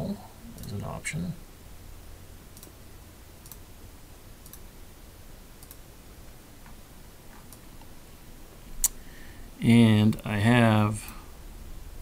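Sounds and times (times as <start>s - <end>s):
low room hum: 0.0s - 12.0s
computer mouse clicks: 2.6s - 2.8s, 3.4s - 3.6s, 4.4s - 4.6s, 5.6s - 5.8s.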